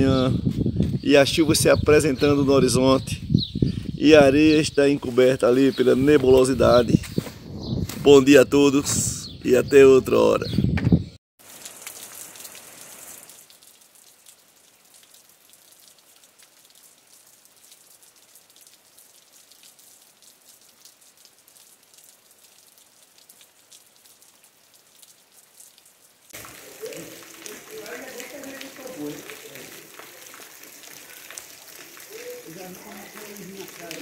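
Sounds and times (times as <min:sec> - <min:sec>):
rain falling: 0:11.4 - 0:34.0.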